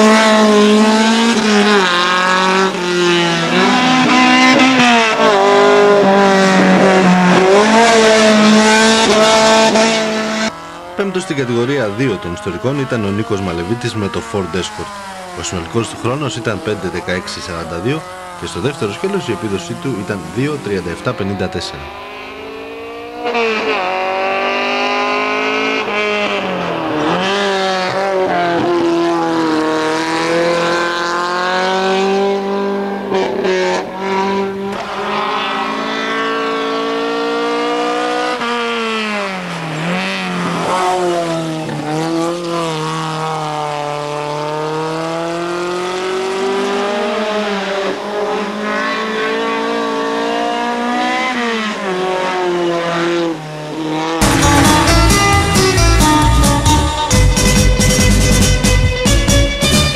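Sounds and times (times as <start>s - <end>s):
race car engine revving hard: 0.0s - 59.9s.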